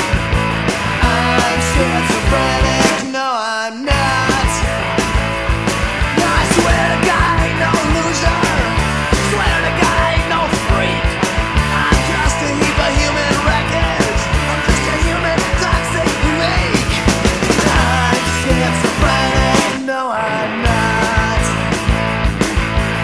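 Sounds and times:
loud rock music: 0:00.0 - 0:23.0.

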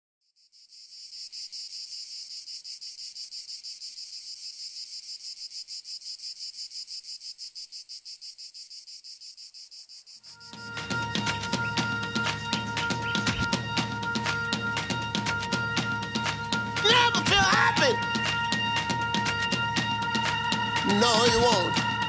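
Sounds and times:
crickets chirping: 0:00.2 - 0:16.4.

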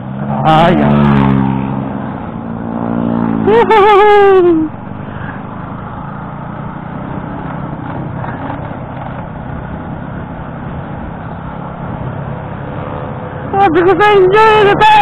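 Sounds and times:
motorcycle engine drone: 0:00.0 - 0:15.0
road noise: 0:00.0 - 0:15.0
wind: 0:00.0 - 0:15.0.

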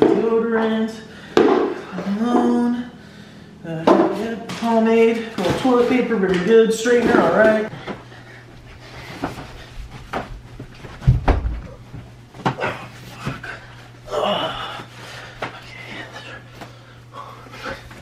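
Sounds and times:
steady low hum: 0:00.0 - 0:18.0
heavy thud: 0:11.0 - 0:11.8.

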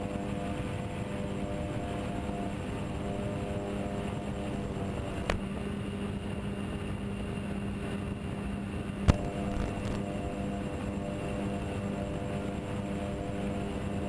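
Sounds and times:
model plane motors humming: 0:00.0 - 0:07.3.

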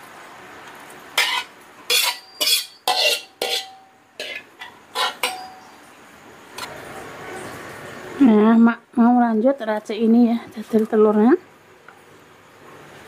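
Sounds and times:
metal spatula scraping wok: 0:01.2 - 0:05.7.

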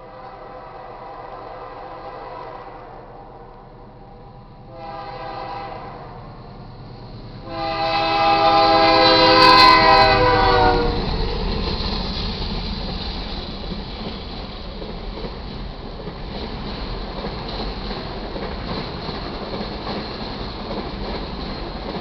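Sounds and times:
locomotive air horn blasts: 0:00.0 - 0:03.5, 0:04.7 - 0:06.3, 0:07.4 - 0:11.0
rail cars rumbling over crossing: 0:00.0 - 0:22.0.

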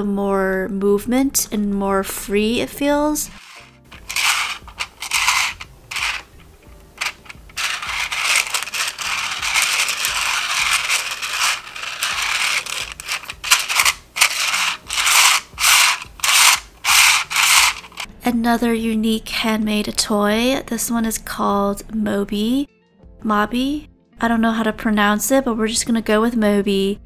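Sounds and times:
fidget toy rings sliding and scraping: 0:03.3 - 0:18.1.

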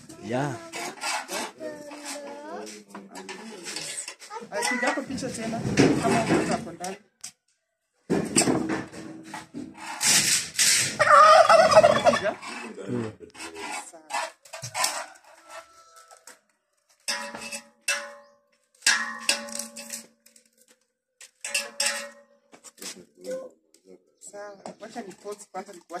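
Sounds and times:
turkeys gobbling: 0:10.9 - 0:12.6.

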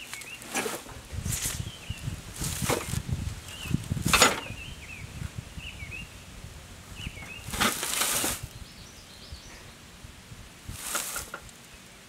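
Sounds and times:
mower deck scraping across grass: 0:00.0 - 0:01.7, 0:02.3 - 0:04.6, 0:07.2 - 0:08.5, 0:10.7 - 0:11.6
small bird chirping: 0:07.0 - 0:09.8.

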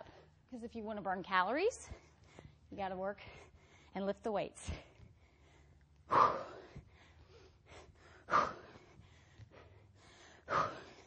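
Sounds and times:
woman breathing out hard: 0:04.8 - 0:11.0.

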